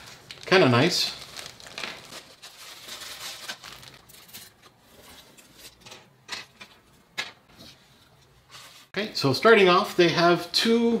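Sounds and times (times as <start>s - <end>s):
plastic bag crinkling: 0.0s - 5.7s
cloth bag rustling: 1.2s - 5.2s.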